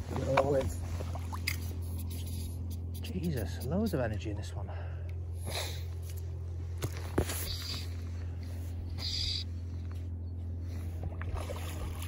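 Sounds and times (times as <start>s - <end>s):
hissing rustles: 7.0s - 9.5s.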